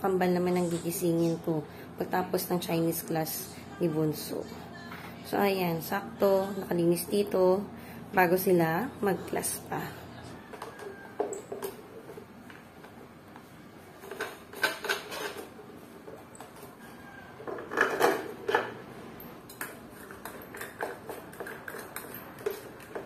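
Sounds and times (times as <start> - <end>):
dishes and cutlery clinking: 17.4 - 18.8, 19.4 - 23.0.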